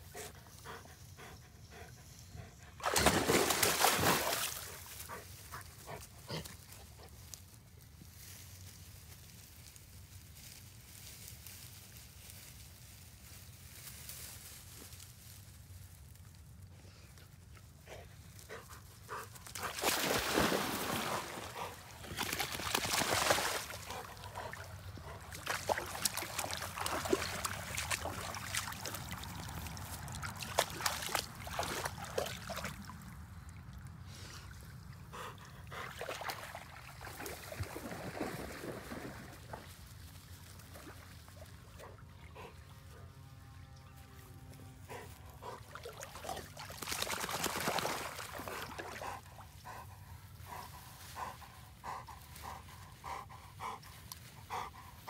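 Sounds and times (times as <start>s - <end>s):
water splashing and sloshing: 1.8s - 7.5s, 18.3s - 43.0s, 44.9s - 55.0s.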